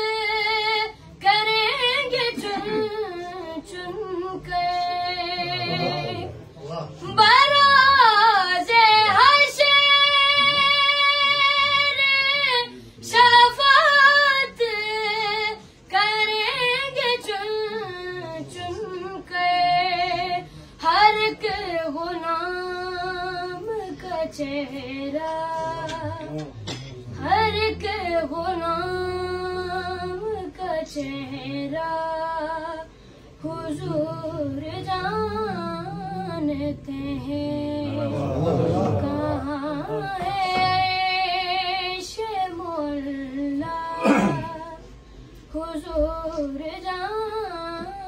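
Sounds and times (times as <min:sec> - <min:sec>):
boy singing: 0:33.4 - 0:44.9.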